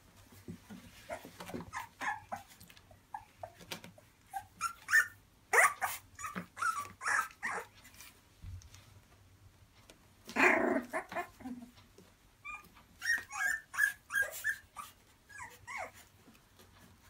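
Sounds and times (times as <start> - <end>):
puppies squeaking and yipping: 0.9 - 8.1, 10.4 - 11.6, 12.4 - 16.1
puppy growling: 10.2 - 11.8.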